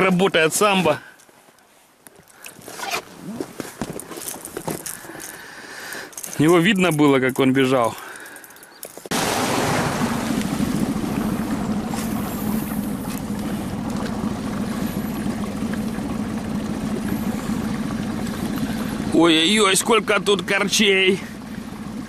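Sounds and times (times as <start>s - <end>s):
outboard motor drone: 9.1s - 22.0s.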